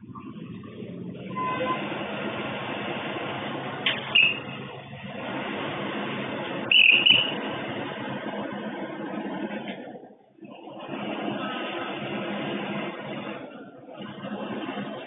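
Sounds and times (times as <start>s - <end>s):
street background noise: 0.0s - 15.0s
high bird chirps: 6.7s - 7.4s.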